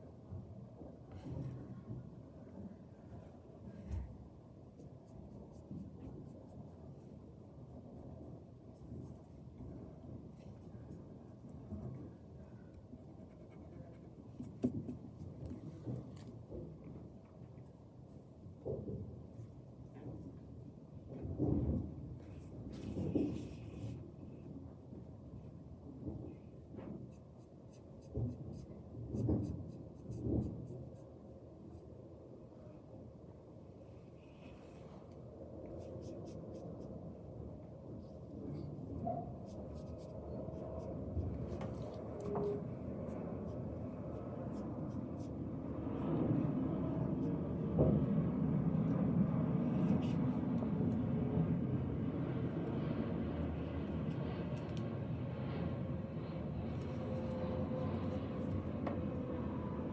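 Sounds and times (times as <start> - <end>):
pencil scratching on paper: 4.7 - 7.4, 13.0 - 16.3, 27.1 - 31.8, 35.7 - 37.0, 39.3 - 45.6
steady low rumble: 28.0 - 59.9.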